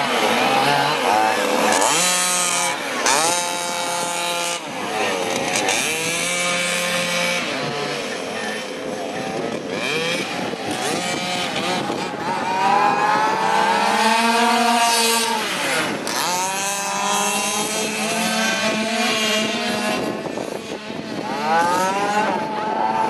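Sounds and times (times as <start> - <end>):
rc car engines revving: 0.0 - 23.0.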